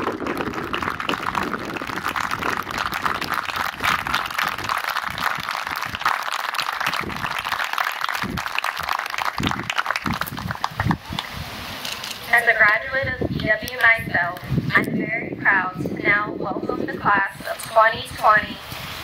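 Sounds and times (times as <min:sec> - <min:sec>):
crowd applauding: 0:00.0 - 0:11.3.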